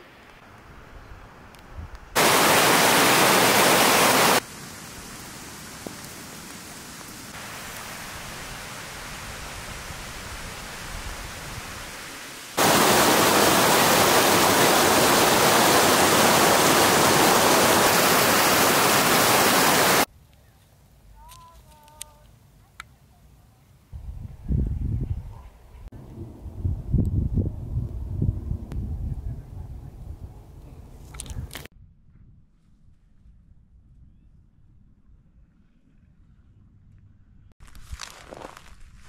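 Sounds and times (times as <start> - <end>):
creek rushing over rocks: 2.2 - 20.1.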